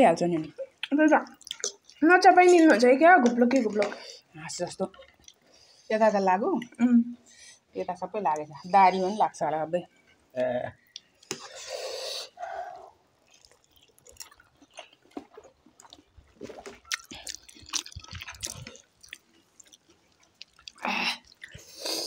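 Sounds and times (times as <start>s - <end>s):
small clicks and smacks: 0.4s - 4.0s
wet chewing and slurping: 0.7s - 2.8s, 4.8s - 5.9s, 10.9s - 22.0s.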